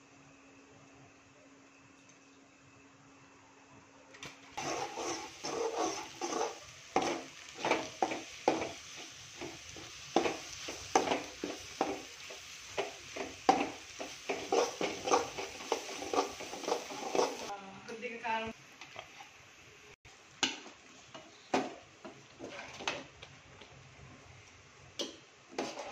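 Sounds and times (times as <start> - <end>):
spatula scraping pan: 4.6 - 17.5, 22.3 - 23.1, 25.5 - 25.9.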